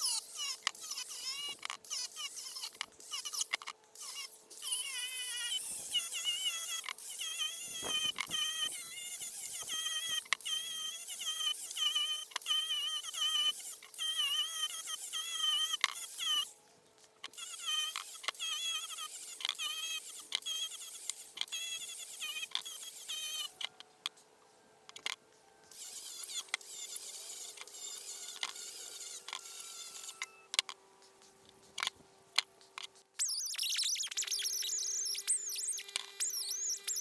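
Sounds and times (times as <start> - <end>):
wire wheel squeaky whine: 5.0 - 11.0, 33.2 - 37.0.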